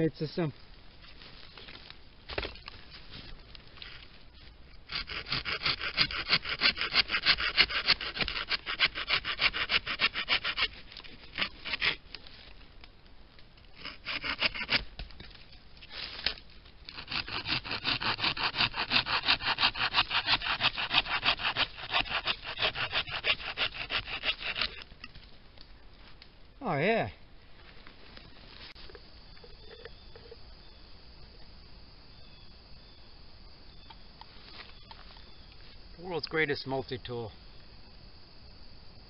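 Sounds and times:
hand saw cutting wood: 4.9s - 12.0s, 13.8s - 14.8s, 16.9s - 24.8s.

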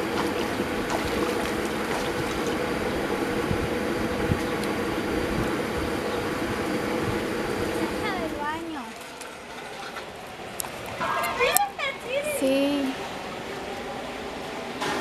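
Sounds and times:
water splashing: 0.0s - 3.2s, 7.7s - 12.2s.

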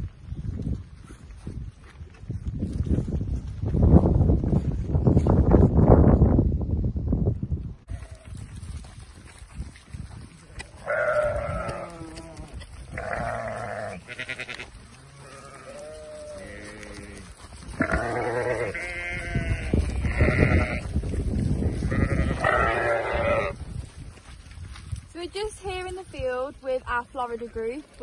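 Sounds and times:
sheep bleating: 10.8s - 17.2s, 17.8s - 20.9s, 21.8s - 23.6s.

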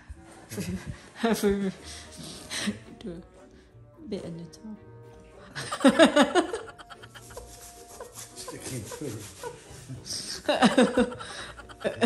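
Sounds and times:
man laughing: 5.6s - 9.8s, 10.5s - 12.0s.

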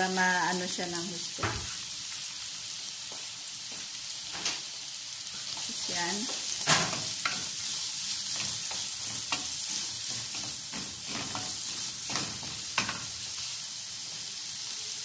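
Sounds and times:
onions sizzling in hot oil: 0.0s - 15.0s
wooden spatula scraping a pan: 5.4s - 13.2s.

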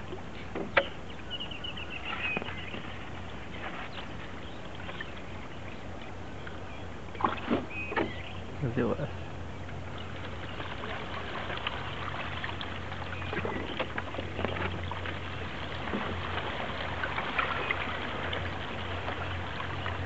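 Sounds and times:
steady low hum: 0.0s - 20.0s
water trickling and lapping: 0.0s - 20.0s
small splashes and ticks: 9.6s - 20.0s.

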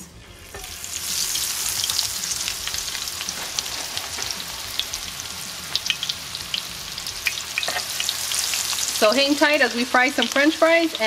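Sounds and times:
fries sizzling in hot oil: 0.4s - 11.0s.

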